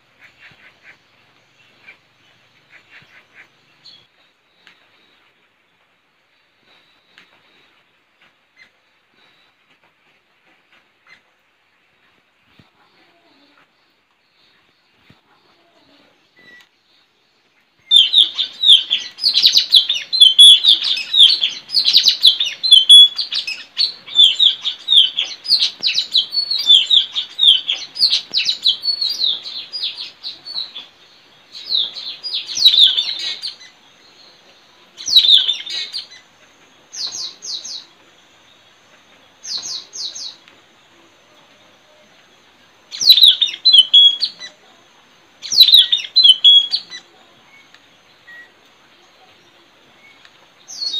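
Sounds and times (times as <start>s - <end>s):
parrots chirping: 17.9s - 30.7s, 43.0s - 44.4s, 45.4s - 47.0s.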